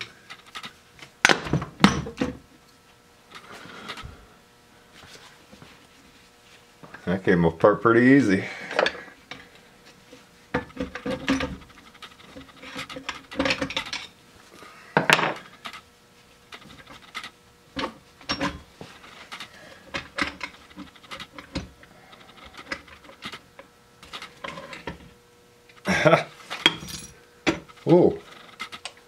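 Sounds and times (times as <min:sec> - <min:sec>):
metal clinks and scraping: 0:26.4 - 0:28.8.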